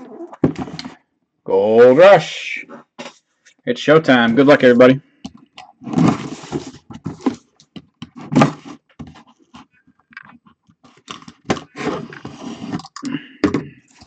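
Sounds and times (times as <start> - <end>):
cardboard box scraping: 5.8 - 7.4, 8.2 - 9.5, 11.5 - 12.8.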